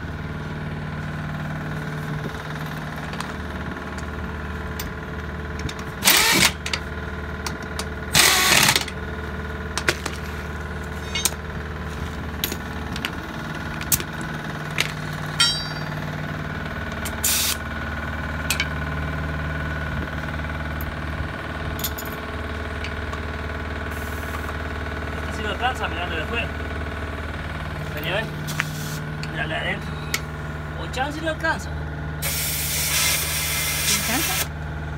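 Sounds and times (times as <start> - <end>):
engine idling: 0.0 - 34.9
pneumatic impact wrench bursts: 6.0 - 6.8, 8.1 - 9.0, 17.0 - 17.6, 28.5 - 29.1, 32.2 - 34.5
metal clicks and clinks: 11.0 - 11.4, 21.8 - 22.2.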